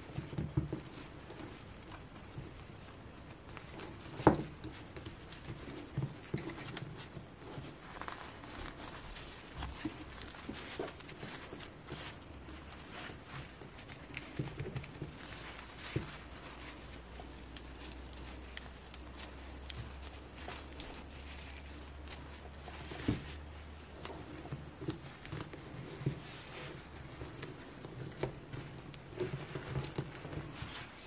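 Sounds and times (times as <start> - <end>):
fabric dress rustling: 0.0 - 31.0.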